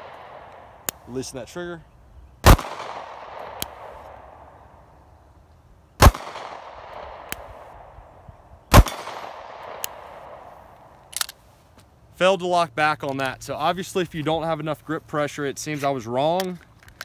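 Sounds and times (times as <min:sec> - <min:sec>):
pistol shots with echo: 0:02.4 - 0:04.5, 0:06.0 - 0:07.9, 0:08.7 - 0:10.5.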